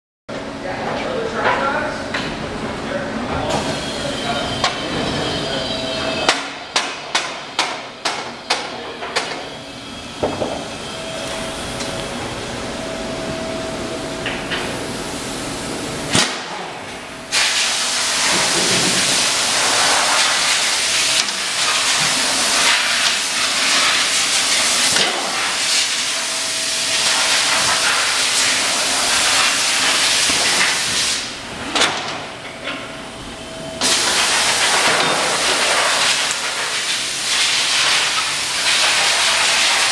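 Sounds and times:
loud steady hiss: 0:07.6 - 0:31.5, 0:33.4 - 0:39.9.

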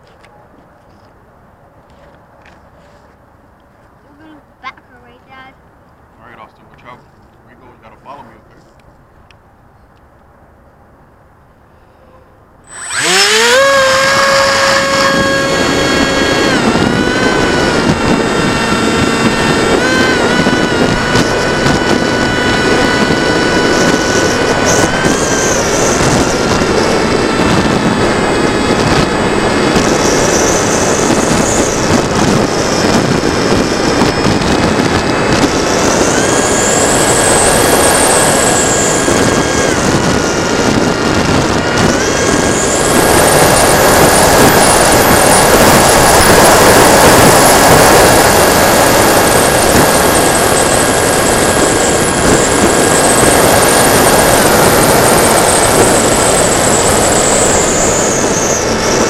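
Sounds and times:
electric motor and propeller whine: 0:12.6 - 0:59.0
wind rush: 0:12.7 - 0:59.0.

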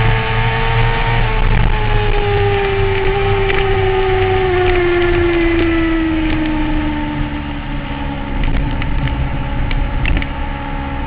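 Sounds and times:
motorcycle engine at high speed: 0:00.0 - 0:11.0
wind and road noise: 0:00.0 - 0:11.0.

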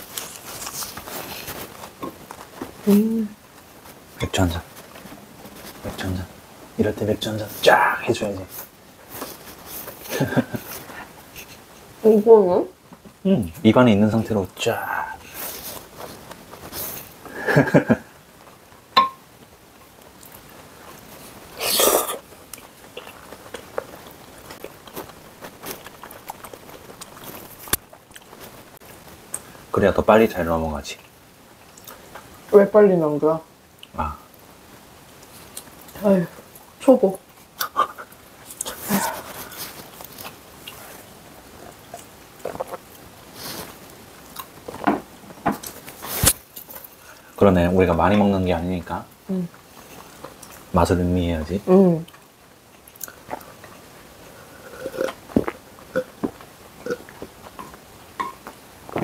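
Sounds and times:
chewing with wet clicks: 0:22.5 - 0:28.4, 0:31.6 - 0:32.2, 0:52.1 - 0:53.8
chewing with mouth clicks: 0:22.5 - 0:29.5, 0:37.6 - 0:44.8, 0:52.1 - 0:53.8.

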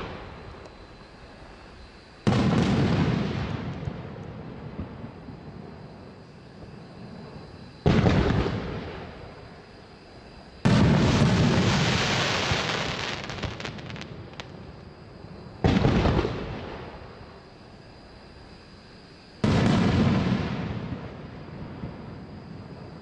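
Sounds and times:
firework blasts rumbling: 0:00.0 - 0:01.0, 0:01.6 - 0:05.8, 0:06.6 - 0:09.6, 0:10.5 - 0:14.8, 0:15.4 - 0:17.3, 0:19.4 - 0:23.0
firework crackling pops: 0:10.6 - 0:14.6, 0:15.6 - 0:16.9.

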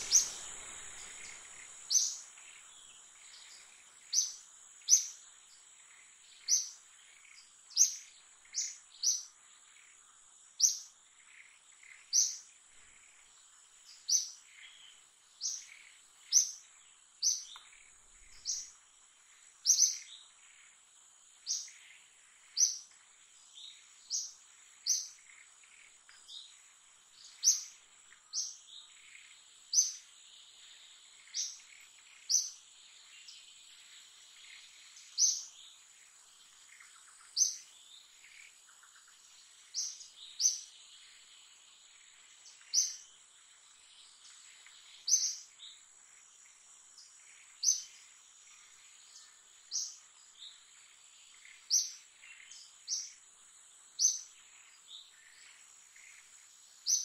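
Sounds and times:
high-pitched insect drone: 0:00.0 - 0:02.6
bird chirping: 0:00.0 - 0:57.0.

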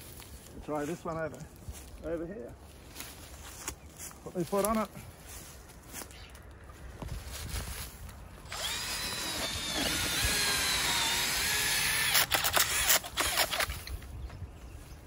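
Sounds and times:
cordless drill motor whining: 0:08.5 - 0:13.9.

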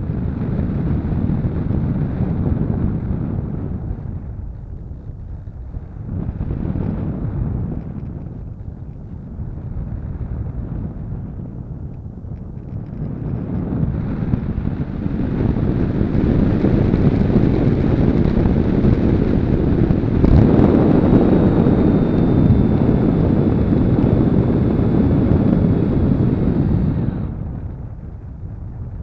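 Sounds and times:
airflow rushing over glider: 0:00.0 - 0:29.0
faint high whine: 0:12.8 - 0:29.0.

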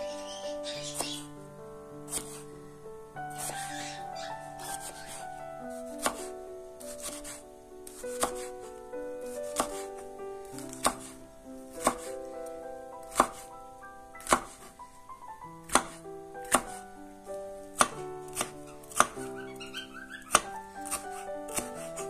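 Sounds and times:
soft background music: 0:00.0 - 0:22.0
knife chopping on wooden board: 0:02.1 - 0:02.4, 0:03.3 - 0:03.6, 0:04.6 - 0:05.2, 0:05.8 - 0:06.3, 0:06.9 - 0:08.5, 0:09.4 - 0:09.8, 0:10.6 - 0:11.2, 0:11.8 - 0:12.1, 0:13.0 - 0:13.5, 0:14.2 - 0:14.7, 0:15.6 - 0:16.8, 0:17.8 - 0:19.2, 0:20.3 - 0:22.0.

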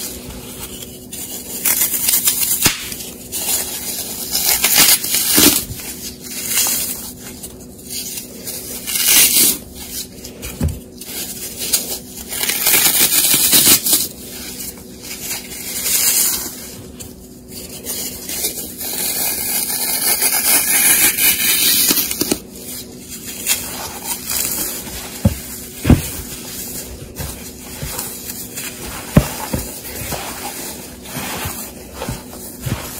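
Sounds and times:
floral foam crunching and crumbling: 0:00.0 - 0:20.5, 0:21.6 - 0:32.9.

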